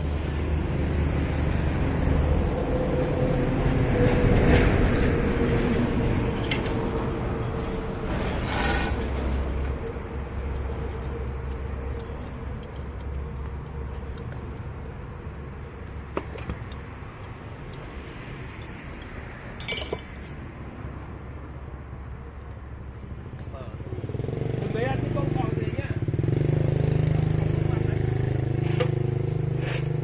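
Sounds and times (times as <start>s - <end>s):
metallic clinks of tools: 19.6s - 20.4s.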